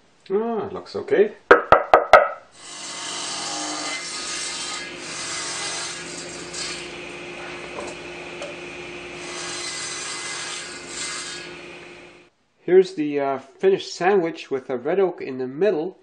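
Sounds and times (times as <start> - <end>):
table saw cutting wood: 2.6 - 12.3.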